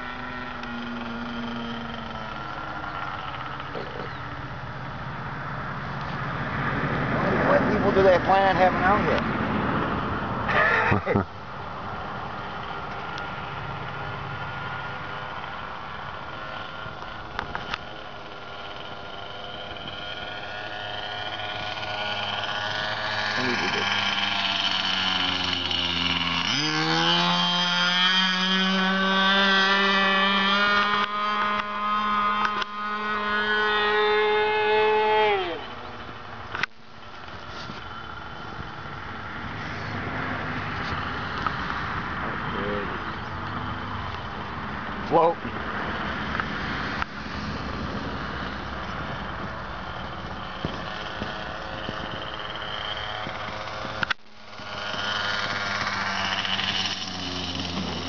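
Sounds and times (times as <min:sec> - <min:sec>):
model airplane engine buzzing: 0:00.0 - 0:58.0.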